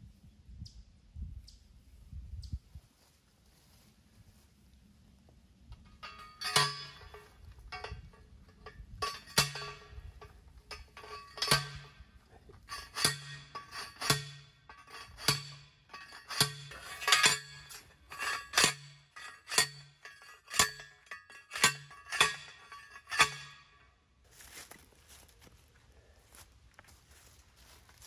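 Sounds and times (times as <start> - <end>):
post driver clanging on metal: 5.8 - 23.9.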